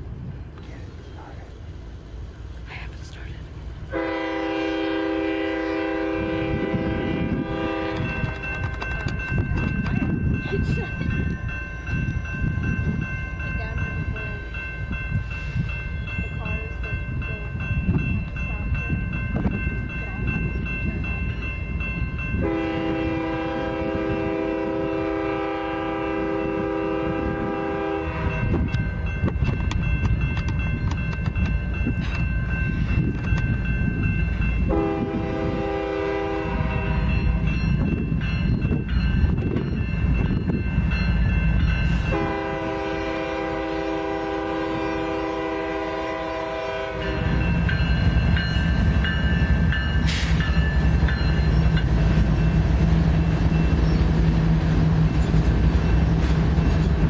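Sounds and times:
freight train rumble: 0:00.0 - 0:57.0
locomotive air horn blasts: 0:03.9 - 0:08.2, 0:22.4 - 0:28.5, 0:34.7 - 0:37.1, 0:42.0 - 0:47.4.

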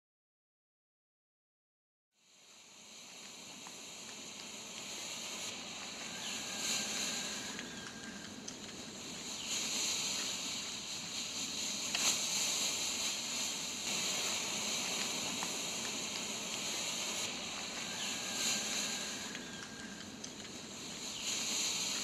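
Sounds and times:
smoke grenades hissing: 0:02.5 - 0:22.0
faint ticks: 0:03.0 - 0:22.0.

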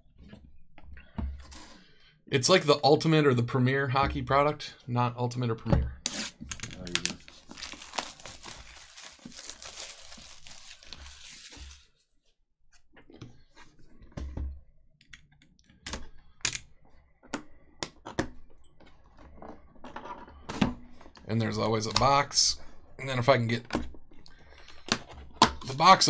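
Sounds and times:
plastic wrap tearing and crinkling: 0:06.1 - 0:12.0.

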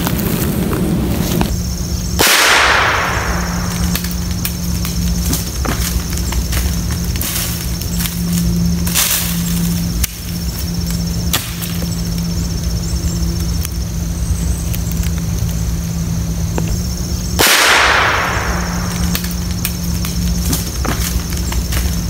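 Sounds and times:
rifle shot: 0:02.2 - 0:04.0, 0:17.4 - 0:19.2.

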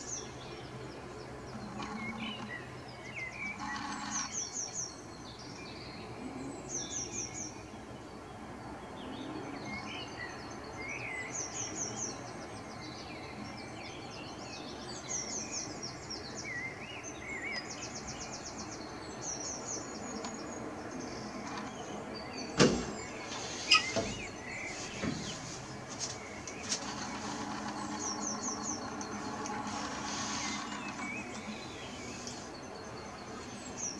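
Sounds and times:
lower bird chirps: 0:14.0 - 0:33.9
sharp knocks: 0:22.6 - 0:23.1.

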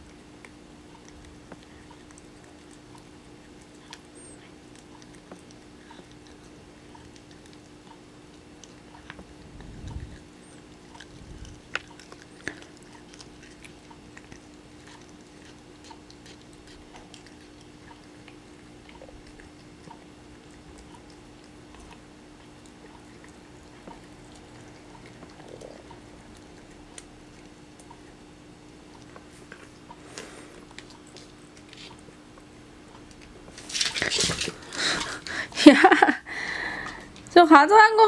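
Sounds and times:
cat crunching treat: 0:00.0 - 0:35.5
faint steady hum: 0:00.0 - 0:38.0.

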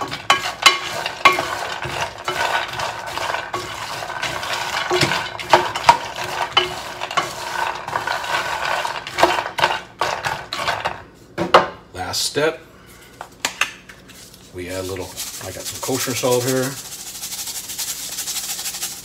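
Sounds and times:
nuts rattling in a metal pan: 0:00.0 - 0:11.0, 0:15.0 - 0:19.0.

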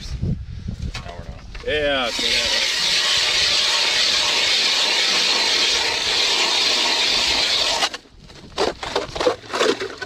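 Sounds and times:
ice auger whirring through ice: 0:02.1 - 0:08.0.

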